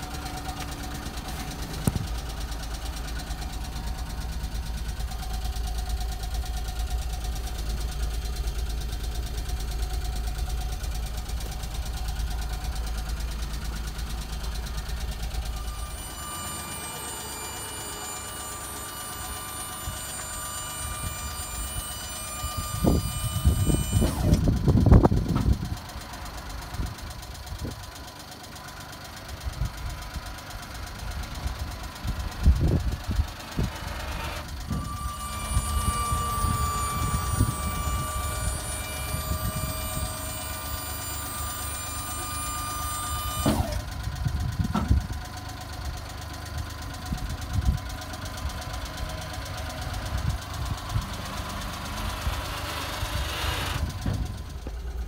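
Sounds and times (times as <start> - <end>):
hydraulic whine: 0.0 - 26.1, 31.2 - 45.3, 46.5 - 55.0
small engine idling: 0.0 - 55.0.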